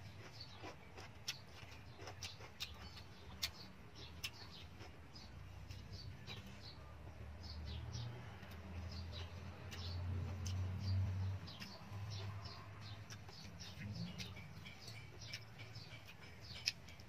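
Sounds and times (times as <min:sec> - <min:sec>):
person chewing with lip smacks: 0:00.2 - 0:05.0.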